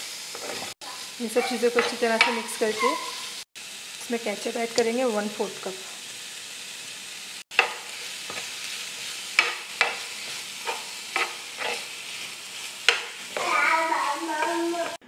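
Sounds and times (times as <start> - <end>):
food sizzling in a frying pan: 0.0 - 15.0
metal spoon scraping a pan: 0.3 - 3.4, 7.5 - 13.5.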